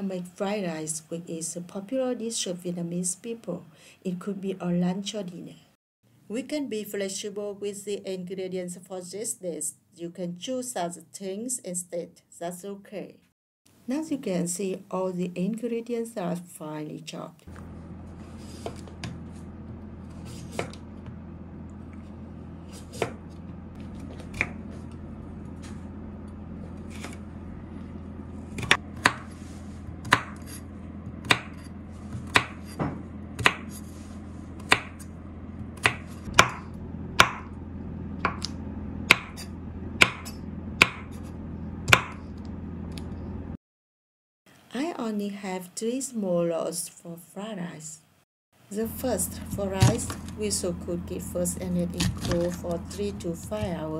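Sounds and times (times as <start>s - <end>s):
knife chopping on wooden board: 18.4s - 19.2s, 20.1s - 21.2s, 22.7s - 25.0s, 26.8s - 27.2s, 28.6s - 33.9s, 34.6s - 35.0s, 35.6s - 37.5s, 38.2s - 38.5s, 39.1s - 41.3s, 41.9s - 42.2s.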